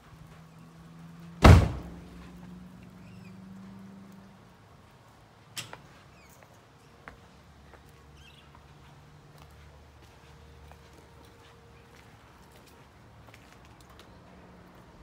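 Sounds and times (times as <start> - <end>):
loud thump: 1.4 - 2.1.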